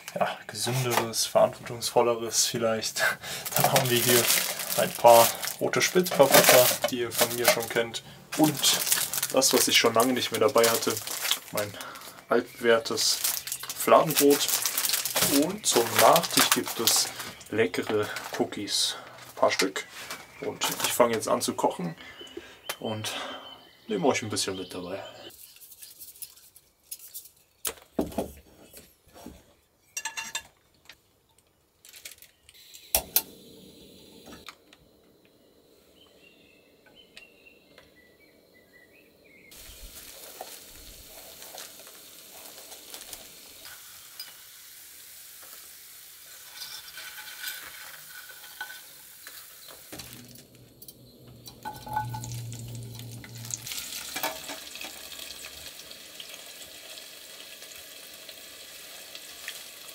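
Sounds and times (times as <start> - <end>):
food sizzling in a pan: 12.5 - 17.4, 39.5 - 50.5, 51.5 - 59.9
cookware clinking and knocking: 29.9 - 30.6, 51.5 - 52.7, 54.0 - 55.0.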